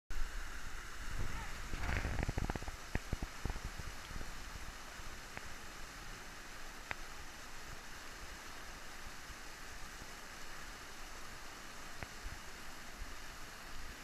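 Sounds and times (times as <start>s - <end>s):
faint sharp ticks: 5.2s - 5.5s, 6.8s - 7.1s.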